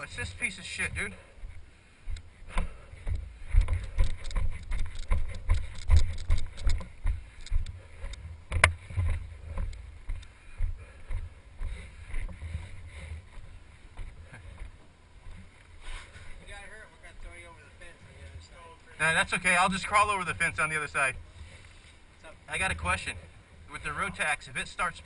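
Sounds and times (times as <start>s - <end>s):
footsteps and knocks: 1.4s - 15.7s
wind rumbling on microphone: 2.1s - 10.9s.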